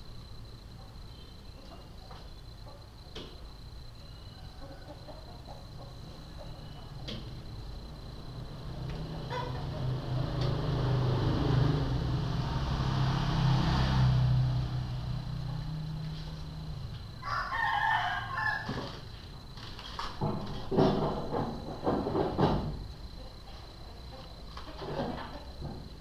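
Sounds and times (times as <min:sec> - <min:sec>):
rooster crowing: 0:04.0 - 0:07.0, 0:08.6 - 0:11.5, 0:14.5 - 0:19.1.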